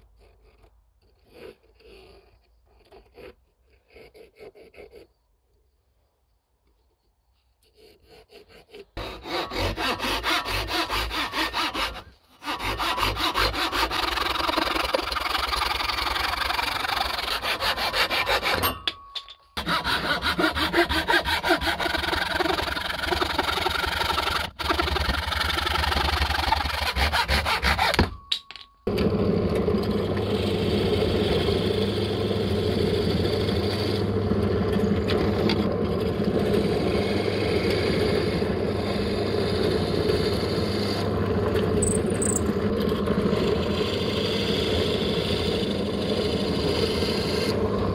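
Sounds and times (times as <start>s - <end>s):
hand saw cutting wood: 0.0s - 5.1s, 7.6s - 18.8s, 19.6s - 28.3s, 43.7s - 47.6s.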